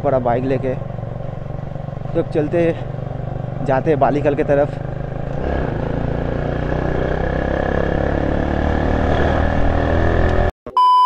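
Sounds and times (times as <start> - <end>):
motorcycle engine running: 0.0 - 10.5.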